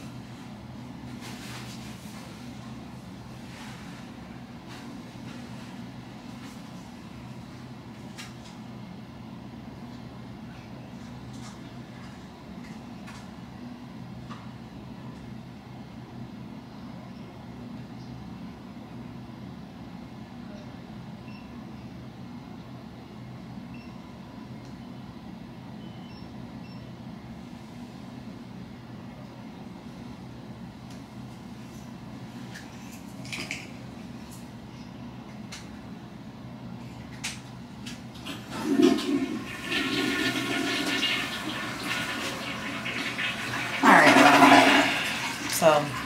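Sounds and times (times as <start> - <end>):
toilet flushing water rushing: 38.2 - 46.0.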